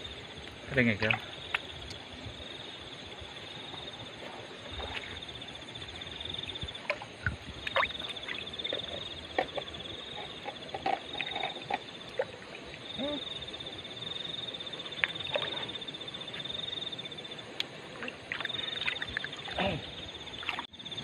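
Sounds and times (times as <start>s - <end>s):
water splashing in stream: 6.7s - 9.8s, 14.9s - 15.9s, 17.6s - 20.7s
night chorus trilling: 7.8s - 21.0s.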